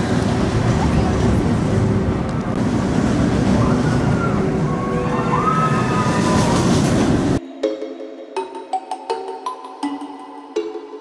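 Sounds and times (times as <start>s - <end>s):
coaster wheels rumbling on rails: 0.0s - 7.4s.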